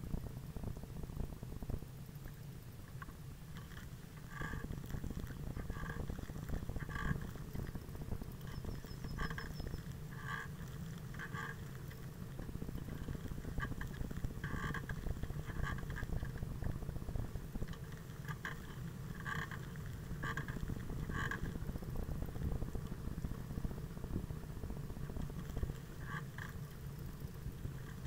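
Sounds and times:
wind and road rumble: 0:00.0 - 0:28.0.

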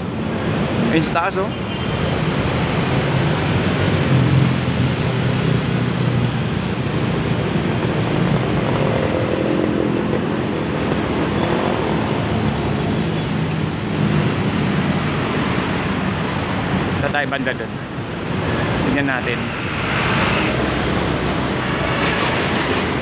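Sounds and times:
motorcycles and cars passing: 0:00.0 - 0:23.0
rumble of engines and tyres: 0:00.0 - 0:23.0.

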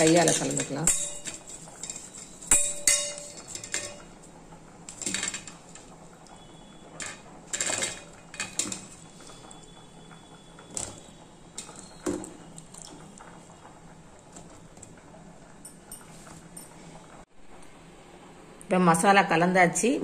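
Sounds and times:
metal bowls clinking: 0:00.0 - 0:06.0, 0:06.9 - 0:09.7, 0:10.6 - 0:13.2.

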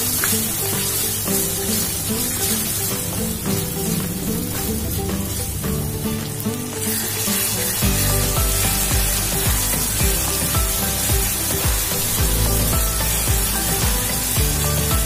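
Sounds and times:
wooden spatula stirring: 0:00.0 - 0:05.6
vegetables sizzling in hot oil: 0:00.0 - 0:15.0
background music with bass beat: 0:00.1 - 0:15.0.

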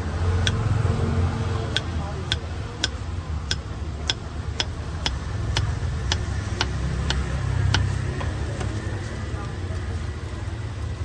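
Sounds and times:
knife tapping on cutting board: 0:01.8 - 0:07.9.

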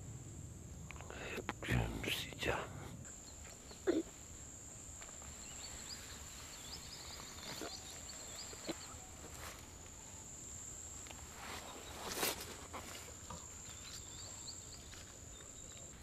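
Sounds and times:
high insect whine: 0:00.0 - 0:16.0
faint bird twittering: 0:05.2 - 0:10.3, 0:11.3 - 0:12.7.

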